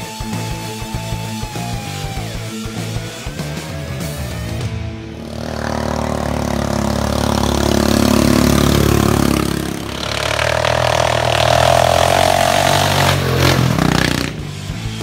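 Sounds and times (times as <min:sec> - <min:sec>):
lawnmower engines passing by: 0:05.1 - 0:15.0.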